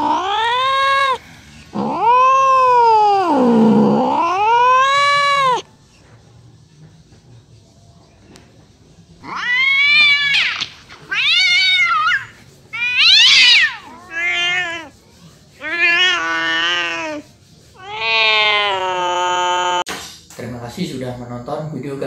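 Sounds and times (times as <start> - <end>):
cat meowing: 0.0 - 5.7, 9.2 - 15.0, 15.6 - 19.9.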